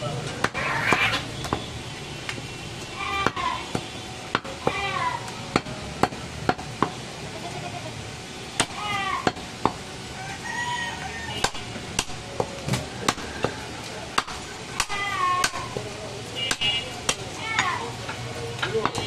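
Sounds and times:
cleaver chopping meat and bone: 0:00.4 - 0:01.7, 0:03.2 - 0:04.8, 0:05.5 - 0:07.0, 0:11.4 - 0:15.8, 0:16.5 - 0:17.3, 0:18.6 - 0:19.0.

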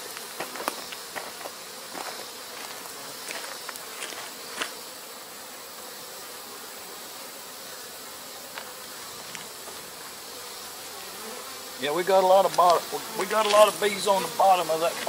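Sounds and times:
bees buzzing: 0:00.0 - 0:15.0
wooden hive boxes knocking: 0:12.4 - 0:15.0.

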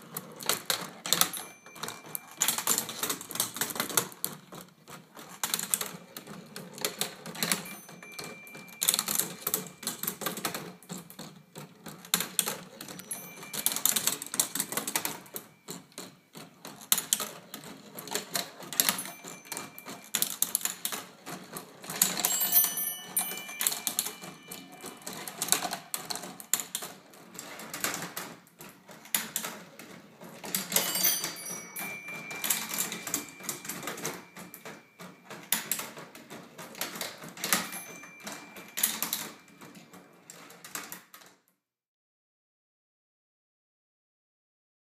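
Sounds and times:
marble balls clattering on wooden tracks: 0:00.0 - 0:41.3
brief ringing tones: 0:22.3 - 0:26.2, 0:30.8 - 0:35.0.

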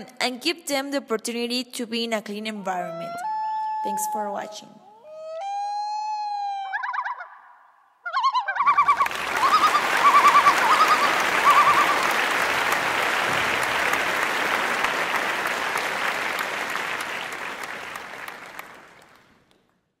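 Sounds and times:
warbling bird-like whistle: 0:03.0 - 0:12.2
crowd clapping: 0:08.6 - 0:19.9.

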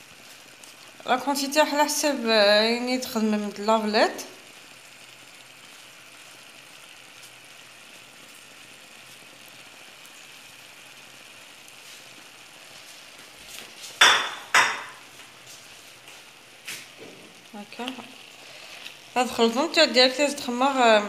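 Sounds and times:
vegetables sizzling in a pan: 0:00.0 - 0:21.0
wooden spoon stirring in a pan: 0:04.9 - 0:19.6.

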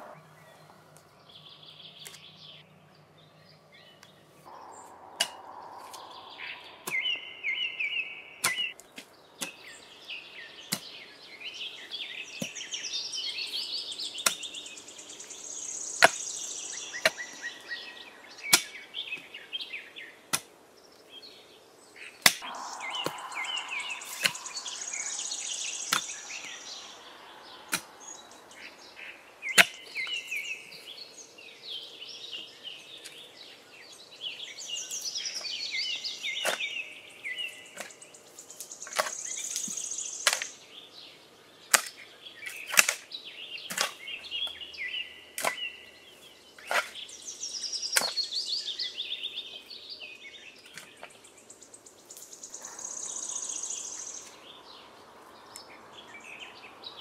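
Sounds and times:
songbird chirping: 0:00.0 - 0:57.0
mattock chopping dry soil: 0:08.4 - 0:09.8, 0:14.2 - 0:14.6, 0:18.4 - 0:19.3, 0:20.3 - 0:20.6, 0:22.2 - 0:28.6, 0:37.7 - 0:40.5, 0:41.7 - 0:44.6, 0:45.3 - 0:45.8, 0:46.6 - 0:48.4.

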